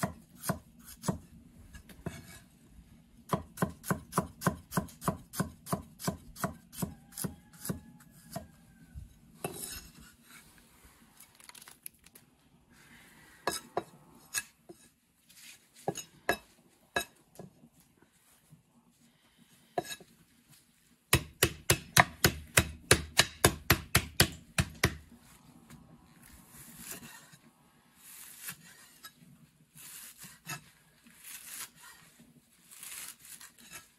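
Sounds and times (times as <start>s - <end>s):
cleaver scraping board: 1.8s - 2.5s, 26.5s - 29.2s, 29.8s - 33.9s
cleaver chopping on wooden block: 21.1s - 25.0s.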